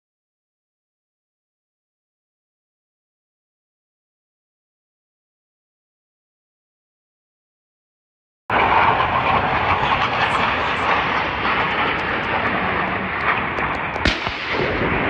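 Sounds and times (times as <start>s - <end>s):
jet engines roaring: 8.5s - 15.0s
sharp crack: 8.5s - 15.0s.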